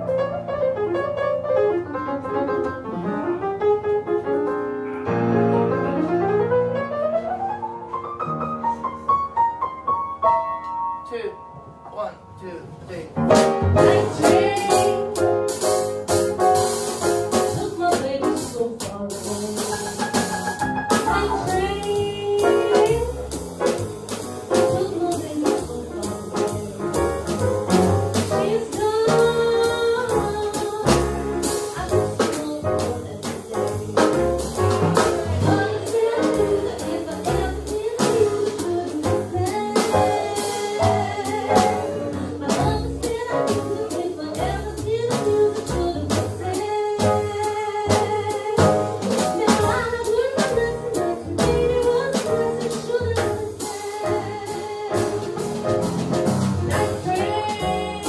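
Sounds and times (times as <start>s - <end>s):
upright piano jazz chords: 0.0s - 58.0s
drums and cymbals: 13.2s - 58.0s.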